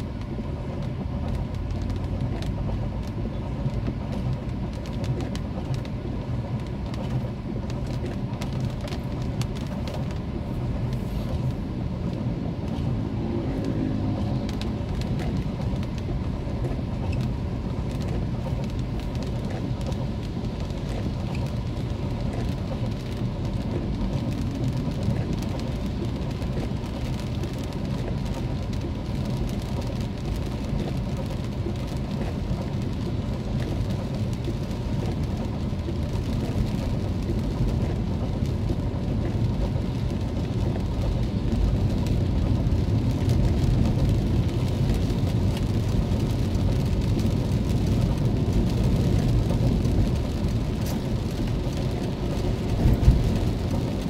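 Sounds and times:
car engine and tyres rumble: 0:00.0 - 0:54.0
rain hissing on car: 0:00.0 - 0:54.0.

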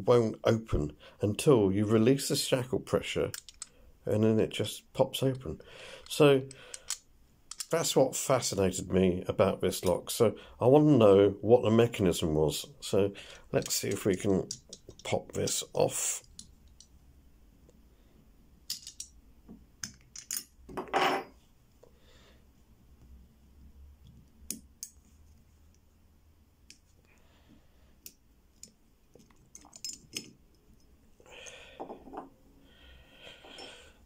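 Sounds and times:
padlock clicking and clattering: 0:03.3 - 0:03.7, 0:06.5 - 0:07.8, 0:18.7 - 0:19.2, 0:19.8 - 0:20.5, 0:28.6 - 0:30.4.

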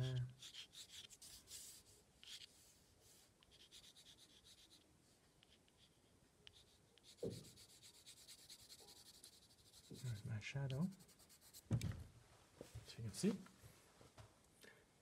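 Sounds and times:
pencil scratching on card: 0:00.0 - 0:04.8, 0:05.4 - 0:11.7.

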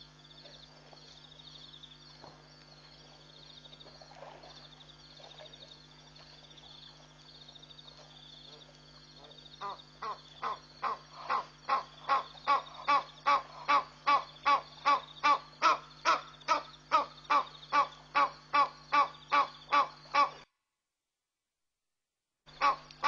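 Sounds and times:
steady low hum: 0:00.0 - 0:20.7, 0:22.5 - 0:23.0
animal calling rhythmically: 0:09.6 - 0:20.4, 0:22.6 - 0:23.0.

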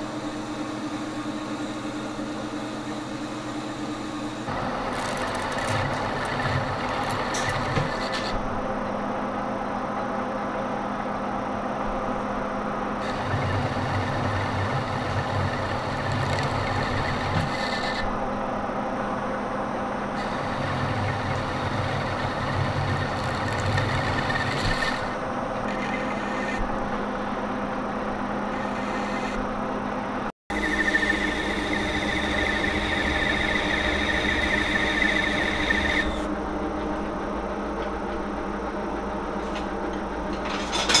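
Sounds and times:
lathe running: 0:00.0 - 0:08.4, 0:13.0 - 0:18.2, 0:20.2 - 0:27.3, 0:28.3 - 0:29.4, 0:30.5 - 0:37.4
lathe tool cutting steel: 0:13.0 - 0:18.1, 0:20.2 - 0:26.6, 0:30.5 - 0:36.3.

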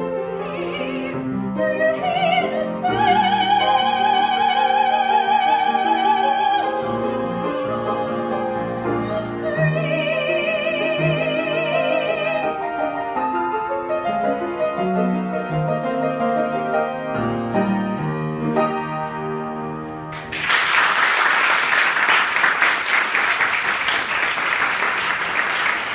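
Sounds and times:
woman singing classically: 0:00.0 - 0:12.6
grand piano: 0:00.0 - 0:25.9
audience applauding: 0:20.1 - 0:25.9.

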